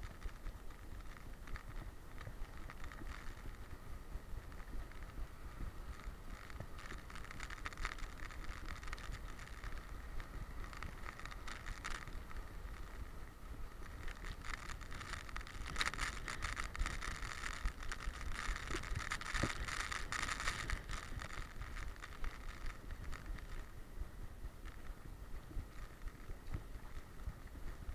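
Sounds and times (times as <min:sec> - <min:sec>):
rhythmic scratchy rustle: 0:00.0 - 0:27.9
wind rumble: 0:00.0 - 0:27.9.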